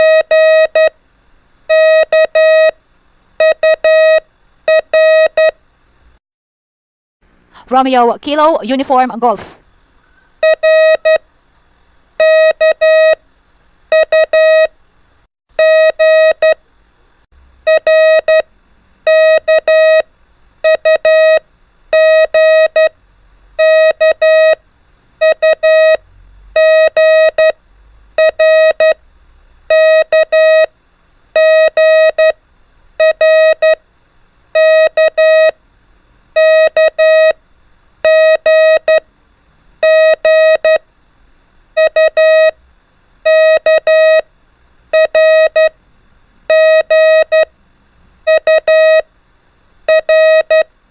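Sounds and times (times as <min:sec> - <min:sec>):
morse code beeps: 0:00.0 - 0:00.9, 0:01.7 - 0:02.8, 0:03.4 - 0:05.6, 0:10.4 - 0:11.2, 0:12.2 - 0:13.2, 0:13.9 - 0:14.7, 0:15.6 - 0:16.6, 0:17.7 - 0:18.4, 0:19.1 - 0:20.0, 0:20.6 - 0:21.4, 0:22.0 - 0:22.9, 0:23.6 - 0:24.6, 0:25.2 - 0:26.0, 0:26.6 - 0:27.6, 0:28.2 - 0:29.0, 0:29.7 - 0:30.7, 0:31.4 - 0:32.4, 0:33.0 - 0:33.8, 0:34.6 - 0:35.6, 0:36.4 - 0:37.4, 0:38.0 - 0:39.0, 0:39.8 - 0:40.8, 0:41.8 - 0:42.6, 0:43.3 - 0:44.2, 0:44.9 - 0:45.8, 0:46.5 - 0:47.5, 0:48.3 - 0:49.0, 0:49.9 - 0:50.7.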